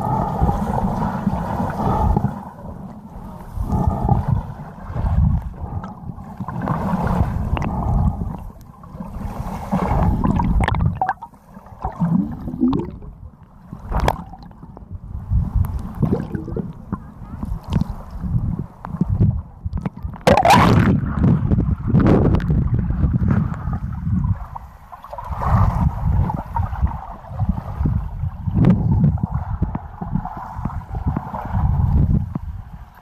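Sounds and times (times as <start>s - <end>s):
muffled underwater water rumble: 0.0s - 33.0s
water bubbling: 3.4s - 14.8s, 15.6s - 17.9s, 19.8s - 21.1s.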